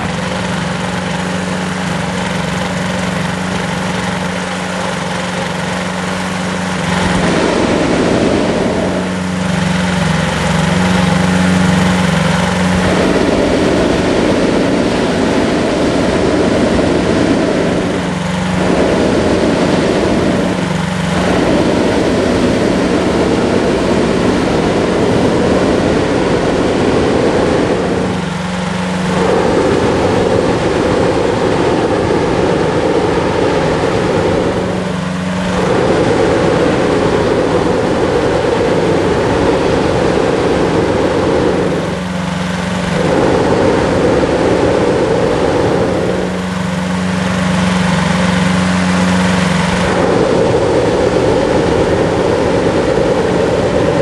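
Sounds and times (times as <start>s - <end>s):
propeller engine humming: 0.0s - 54.0s
rushing noise: 0.0s - 54.0s.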